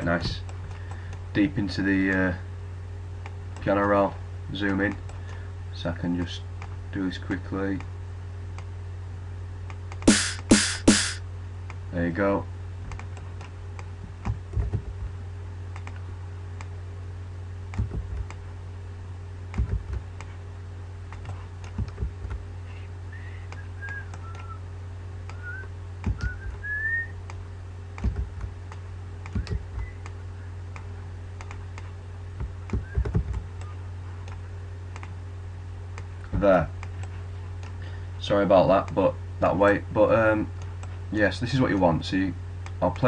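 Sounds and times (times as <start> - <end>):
low electrical hum: 0.0 - 43.0
faint whistle-like chirps: 23.1 - 24.6, 25.3 - 27.2.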